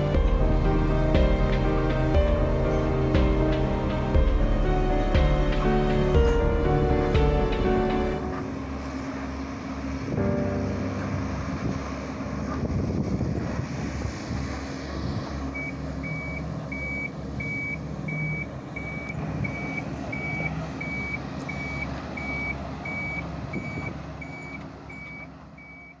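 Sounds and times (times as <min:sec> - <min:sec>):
excavator diesel engine running: 0:00.0 - 0:26.0
warning alarm beeping: 0:15.6 - 0:26.0.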